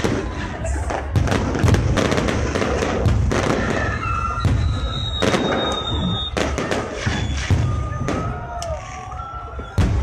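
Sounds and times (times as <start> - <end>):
fireworks bangs and crackle: 0.0 - 10.0
high whistling tones: 3.8 - 10.0.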